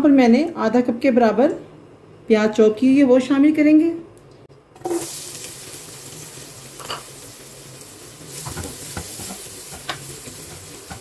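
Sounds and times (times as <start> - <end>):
onions sizzling in hot fat: 4.8 - 11.0.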